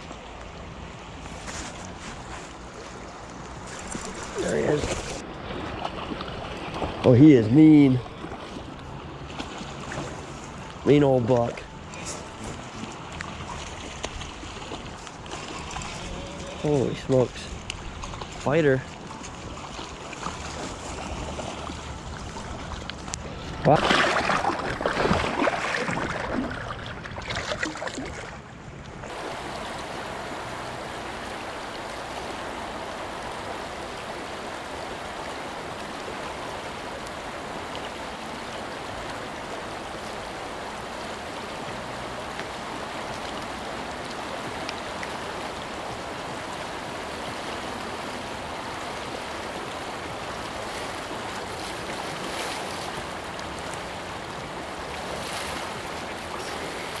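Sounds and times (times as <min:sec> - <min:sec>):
river flowing: 0:00.0 - 0:57.0
fish splashing in water: 0:23.6 - 0:28.4.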